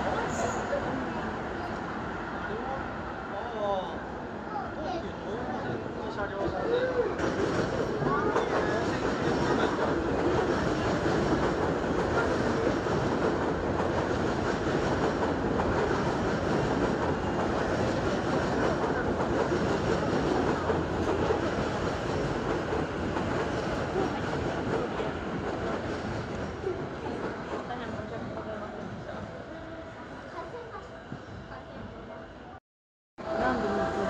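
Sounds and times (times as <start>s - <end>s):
train wheels rumbling on rail: 5.6s - 32.1s.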